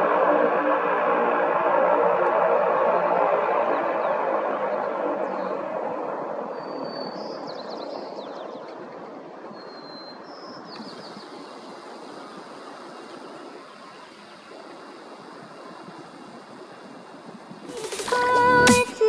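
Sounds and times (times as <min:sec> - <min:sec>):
turboprop engine winding down: 0:00.0 - 0:06.7.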